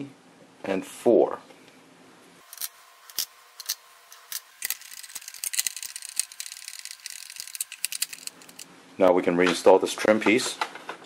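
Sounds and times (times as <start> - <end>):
plastic parts clicking and rattling: 2.5 - 8.7.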